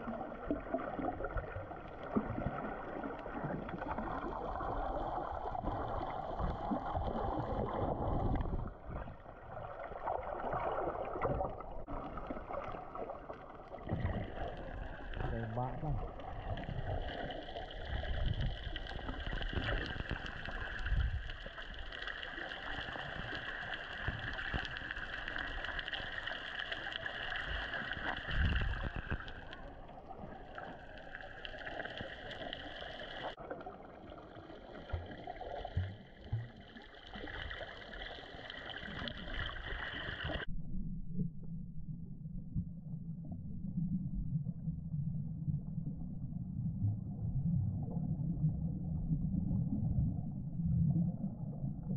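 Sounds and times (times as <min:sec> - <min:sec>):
muffled underwater water noise: 0:00.0 - 0:51.9
water gurgling: 0:00.0 - 0:51.9.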